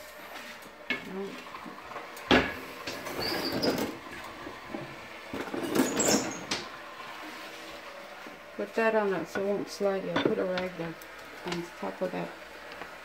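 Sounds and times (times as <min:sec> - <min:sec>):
short high squeaks: 0:03.1 - 0:03.9.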